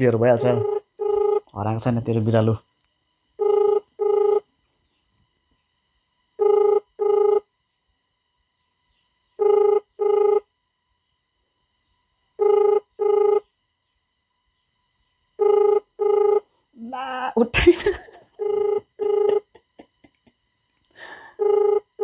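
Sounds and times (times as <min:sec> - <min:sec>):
phone ringback tone: 0:00.4 - 0:01.5, 0:03.4 - 0:04.5, 0:06.4 - 0:07.5, 0:09.4 - 0:10.5, 0:12.4 - 0:13.4, 0:15.4 - 0:16.5, 0:18.4 - 0:19.4, 0:21.4 - 0:22.0.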